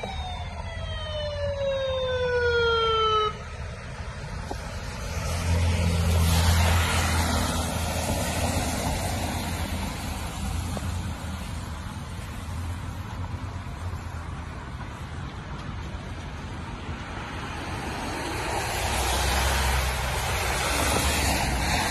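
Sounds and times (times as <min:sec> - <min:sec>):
siren wailing: 0:00.0 - 0:03.8
tyre hiss on wet road: 0:04.5 - 0:15.2, 0:17.4 - 0:21.9.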